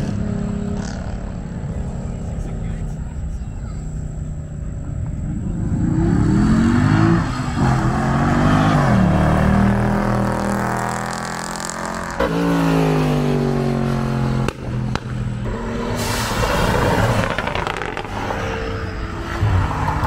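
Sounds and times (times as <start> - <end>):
car engine revving: 4.2 - 20.0.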